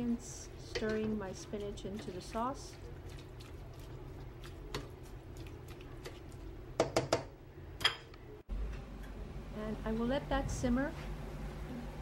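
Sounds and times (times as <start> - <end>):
utensil stirring wet sauce: 0.0 - 7.2.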